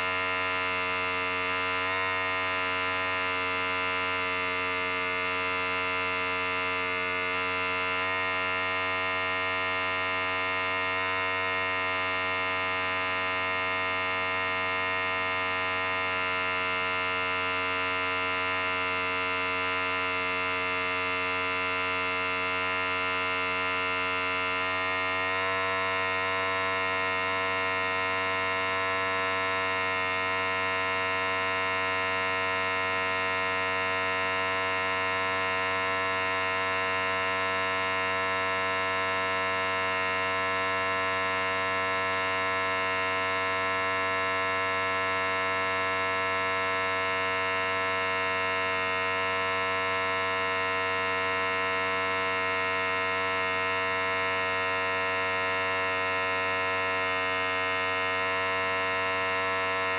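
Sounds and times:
electric hair clippers buzzing: 0:00.0 - 0:41.1.

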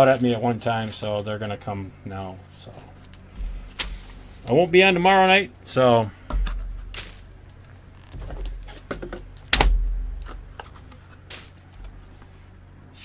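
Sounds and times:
low thuds: 0:03.3 - 0:04.5, 0:08.0 - 0:10.6.

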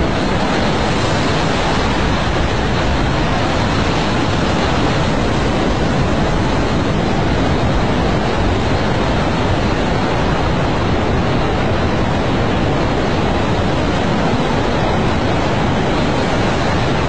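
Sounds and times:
floodwater rushing and churning: 0:00.0 - 0:17.0.

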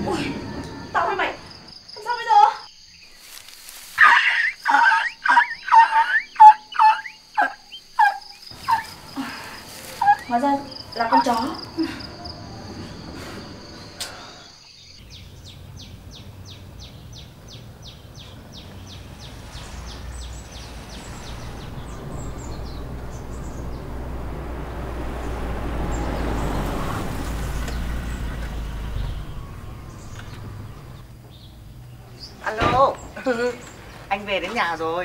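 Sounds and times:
high insect trill: 0:00.0 - 0:35.0
rumbling noise: 0:15.0 - 0:34.4.

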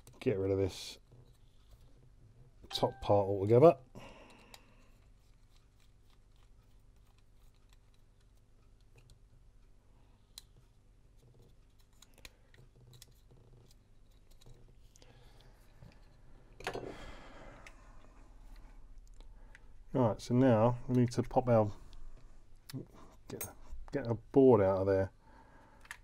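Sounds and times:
small plastic parts clicking: 0:10.2 - 0:16.8, 0:25.7 - 0:26.0.

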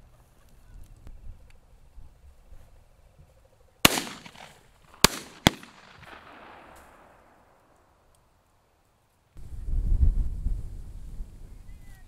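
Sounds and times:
shotgun shots echoing: 0:03.8 - 0:07.7.

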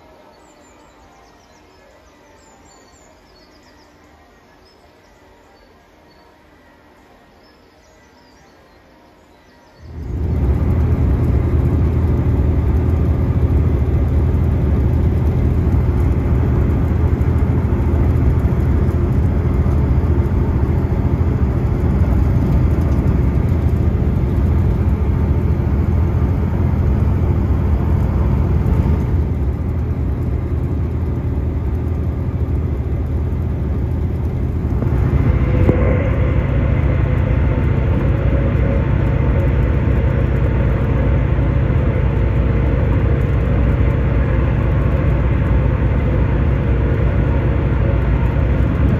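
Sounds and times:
diesel train cabin rumble: 0:09.8 - 0:48.9
high whine: 0:09.8 - 0:48.9.

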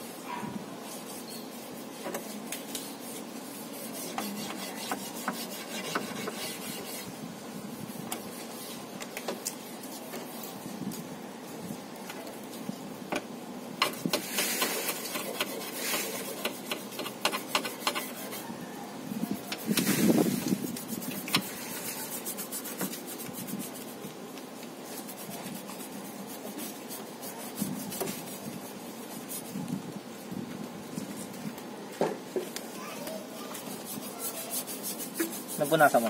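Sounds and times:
hand scrubbing car door: 0:00.9 - 0:07.1, 0:13.8 - 0:18.4, 0:19.3 - 0:24.0, 0:24.8 - 0:29.5, 0:33.5 - 0:36.0
knock and scrape: 0:35.1 - 0:35.4.

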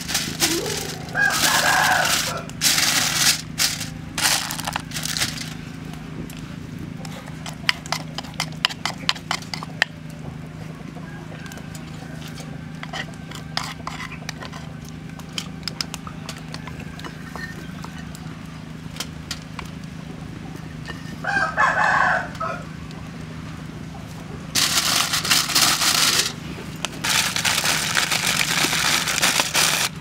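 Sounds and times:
rooster crowing: 0:00.5 - 0:02.8, 0:10.9 - 0:13.6, 0:21.2 - 0:22.8.

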